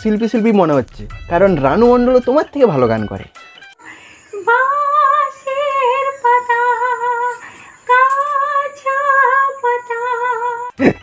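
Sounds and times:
woman singing with vibrato: 0:04.3 - 0:10.8.

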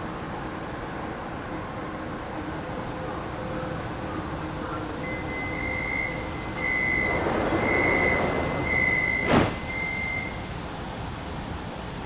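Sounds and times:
door warning beeps: 0:05.0 - 0:10.4
train doors thumping shut: 0:06.5 - 0:10.0.

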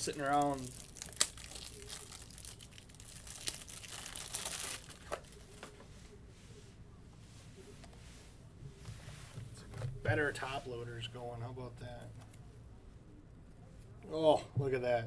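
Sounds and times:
packaging wrapper crinkling and tearing: 0:00.0 - 0:05.4.

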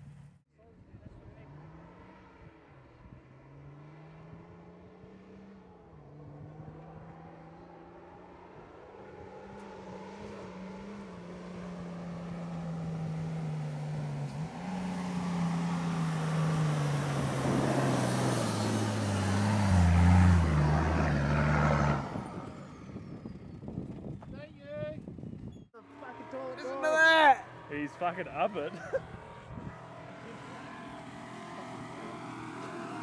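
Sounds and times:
truck engine driving past: 0:08.8 - 0:24.2, 0:25.8 - 0:33.0.

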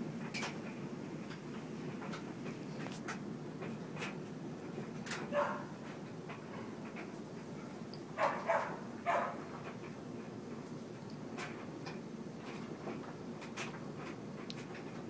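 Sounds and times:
puppies barking: 0:05.3 - 0:05.8, 0:08.2 - 0:09.5.

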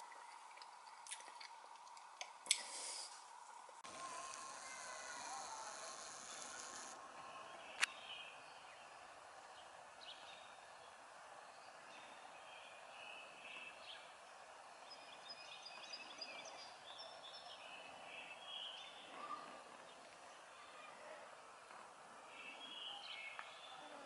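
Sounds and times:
low hiss: 0:01.6 - 0:07.1.

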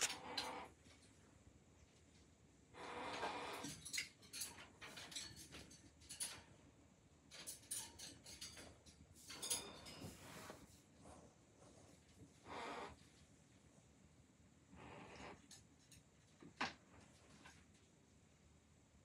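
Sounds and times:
metallic cage rattling: 0:03.6 - 0:06.7, 0:07.3 - 0:10.2.

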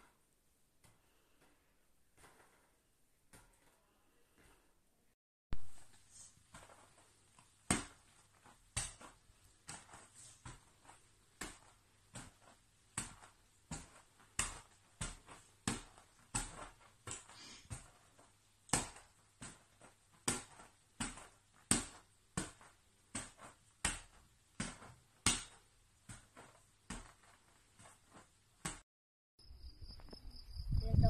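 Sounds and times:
ball bouncing on floor: 0:06.5 - 0:28.8.

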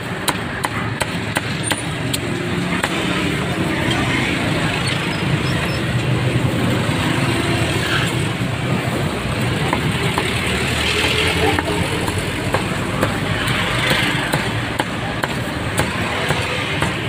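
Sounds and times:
vehicle engines running: 0:00.0 - 0:17.0
scattered voices: 0:08.7 - 0:17.0.

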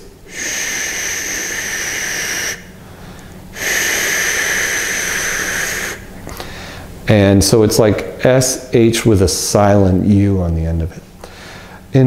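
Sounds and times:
man making whispered shhh: 0:00.3 - 0:02.7, 0:03.6 - 0:06.6.

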